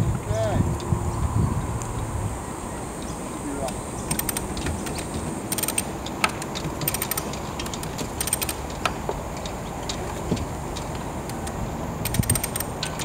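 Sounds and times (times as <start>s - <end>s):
ratchet clicking: 3.6s - 9.6s, 10.7s - 13.0s.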